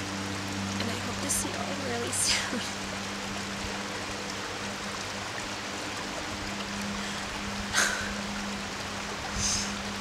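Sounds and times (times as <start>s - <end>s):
creek running over rocks: 0.0s - 10.0s
low steady hum: 0.0s - 10.0s.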